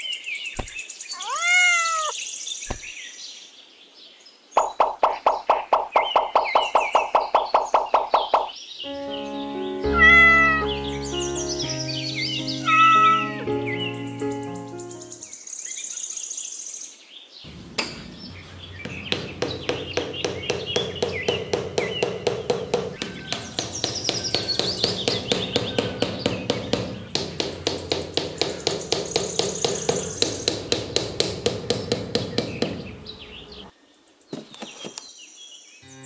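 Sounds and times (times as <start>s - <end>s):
birds chirping: 0.0s - 3.5s, 4.2s - 16.2s, 17.4s - 36.0s
rapid even knocking: 0.6s - 0.8s, 4.6s - 8.5s, 17.5s - 33.7s.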